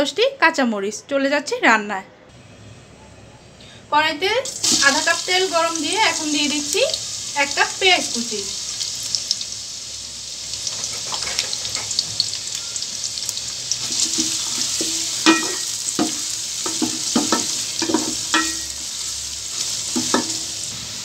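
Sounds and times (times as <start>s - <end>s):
onions sizzling in oil: 4.4s - 21.0s.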